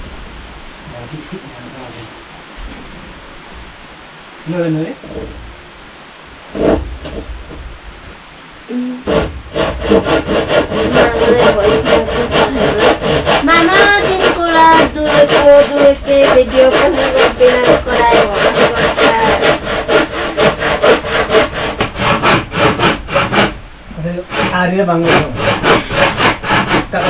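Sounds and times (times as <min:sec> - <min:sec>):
hand saw cutting wood: 0:09.1 - 0:23.6, 0:24.2 - 0:27.0.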